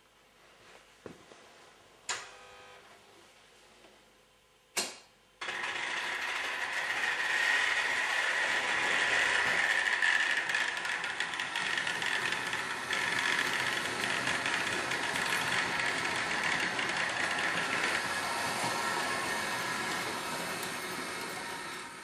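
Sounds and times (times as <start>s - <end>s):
sharp click: 4.8s - 5.1s
model train motor whirring and rattling: 5.4s - 22.0s.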